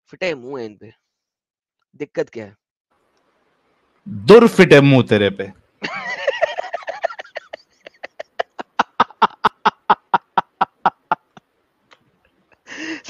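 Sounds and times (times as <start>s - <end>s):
person laughing in short bursts: 5.8s - 11.4s.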